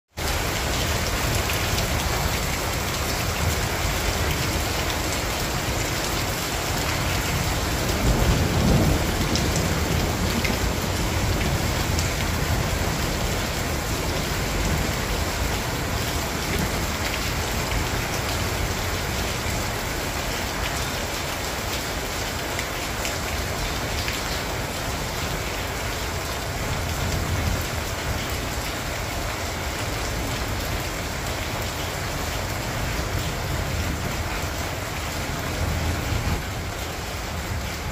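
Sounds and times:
rain on patio and plants: 0:00.1 - 0:37.9.

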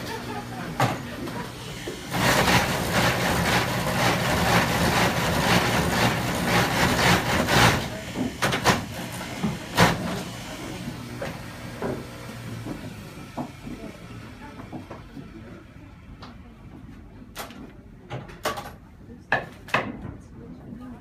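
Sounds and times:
cutters rasping into wood: 0:01.8 - 0:13.9.

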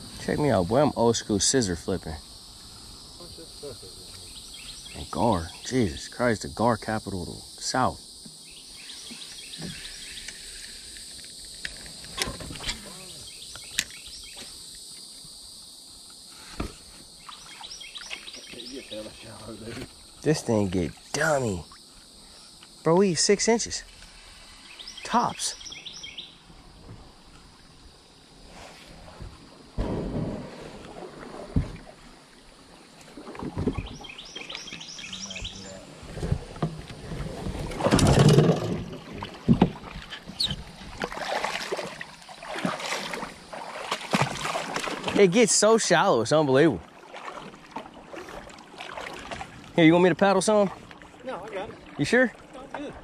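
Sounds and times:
insects buzzing: 0:00.0 - 0:53.0
bird chirping: 0:04.0 - 0:05.8, 0:12.6 - 0:14.4, 0:17.2 - 0:19.1, 0:24.6 - 0:26.4, 0:33.7 - 0:35.9
canoe splashing in shallow water: 0:16.3 - 0:22.3, 0:23.4 - 0:53.0
knocks against canoe hull: 0:16.5 - 0:16.9, 0:33.3 - 0:34.0, 0:36.1 - 0:41.1.

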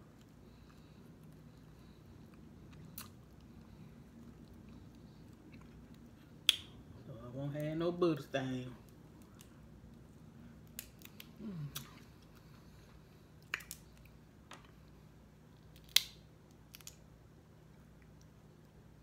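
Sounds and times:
crab legs cracking: 0:10.6 - 0:12.4, 0:13.4 - 0:14.2, 0:15.7 - 0:17.0
person humming: 0:11.4 - 0:12.0.

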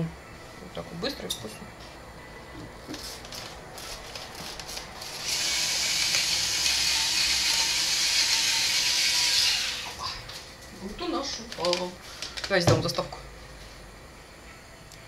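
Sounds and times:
paper sachet tearing: 0:03.2 - 0:05.4
electric spice grinder running: 0:05.0 - 0:10.2.

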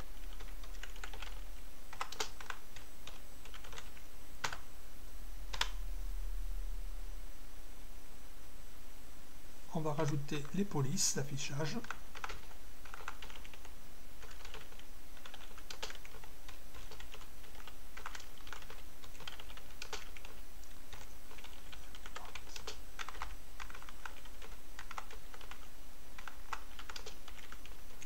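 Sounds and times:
low hum: 0:00.0 - 0:10.8
typing on keyboard: 0:00.2 - 0:04.6, 0:11.8 - 0:28.0.

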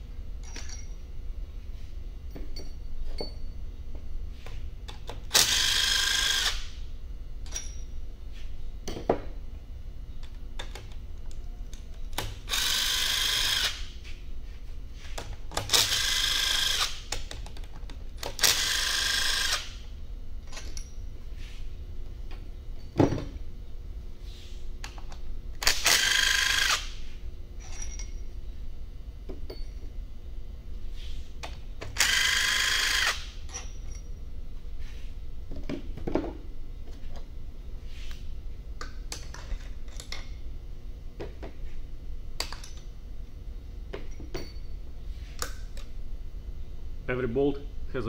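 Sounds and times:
metallic clinks of bolts and tools: 0:00.4 - 0:01.0, 0:02.3 - 0:03.6, 0:07.4 - 0:08.0, 0:20.4 - 0:21.1, 0:27.6 - 0:28.3, 0:29.4 - 0:29.9, 0:33.4 - 0:34.2, 0:42.4 - 0:42.9, 0:44.0 - 0:44.8
impact wrench whining: 0:04.9 - 0:06.8, 0:12.1 - 0:14.0, 0:15.2 - 0:17.6, 0:18.2 - 0:19.9, 0:25.6 - 0:28.2, 0:31.8 - 0:34.1.

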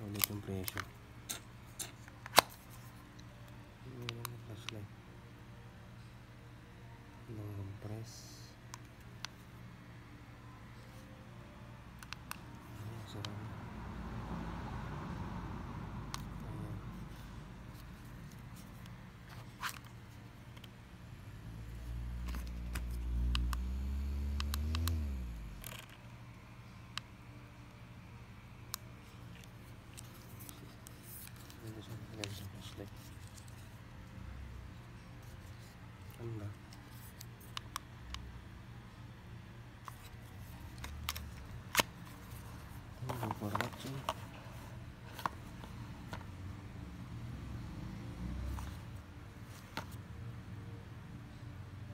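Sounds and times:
handheld fan motor humming: 0:21.4 - 0:25.9
plastic fan clicks: 0:24.4 - 0:25.0.

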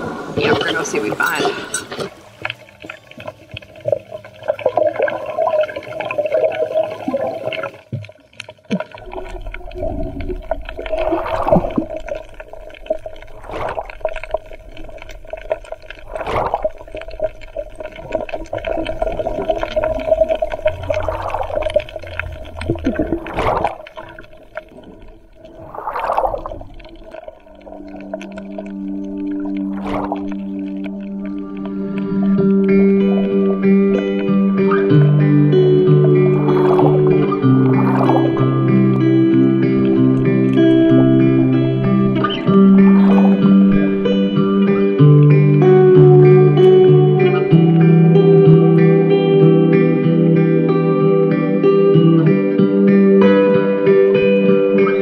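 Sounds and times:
muffled underwater wash: 0:00.0 - 0:55.0
short gurgling surges: 0:04.4 - 0:07.8, 0:08.8 - 0:45.0
low rumble: 0:09.0 - 0:48.7
music: 0:27.9 - 0:55.0.

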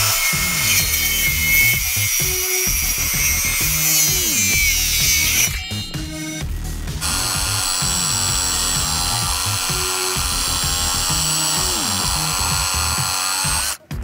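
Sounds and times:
reciprocating saw cutting branch: 0:00.0 - 0:06.4, 0:07.0 - 0:13.9
background music: 0:00.0 - 0:14.0.

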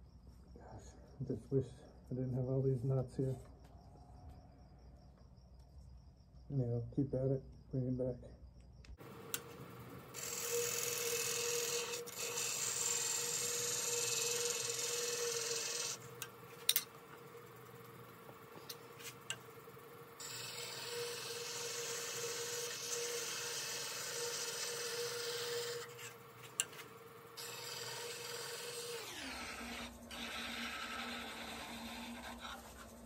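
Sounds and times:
chisel shaving spinning wood: 0:09.0 - 0:33.0
lathe hum: 0:09.0 - 0:33.0.

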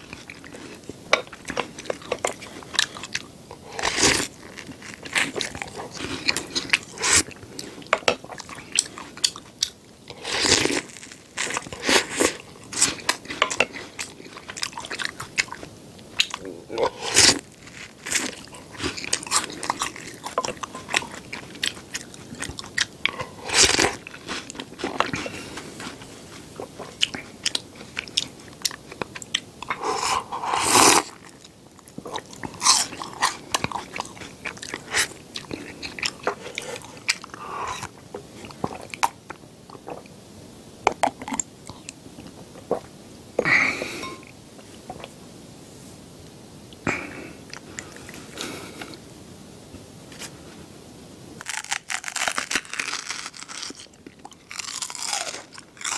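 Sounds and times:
chewing crunchy snack: 0:00.0 - 0:40.1, 0:51.4 - 0:55.9.

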